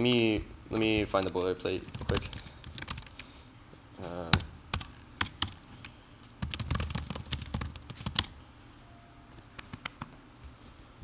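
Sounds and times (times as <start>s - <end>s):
typing on computer keyboard: 1.1s - 3.3s, 4.3s - 8.4s.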